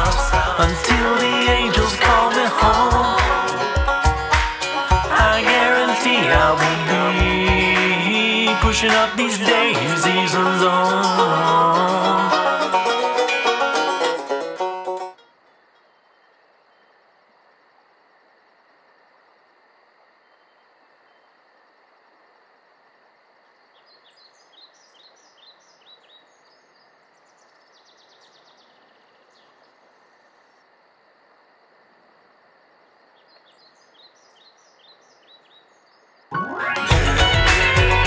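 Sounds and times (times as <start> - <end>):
steady hiss: 0.0 - 8.3
bird chirping: 23.7 - 29.8, 33.1 - 36.6.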